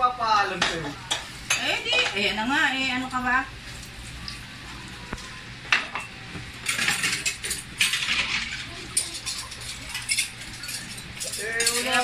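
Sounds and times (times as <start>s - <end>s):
dishes clinking: 0.6s - 2.3s, 5.7s - 12.0s
cutlery and pans clattering: 5.7s - 12.0s.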